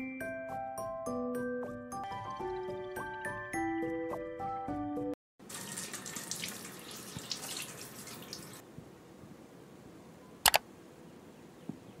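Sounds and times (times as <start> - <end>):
running water splashing: 5.4 - 8.6
sharp double click: 10.4 - 10.6.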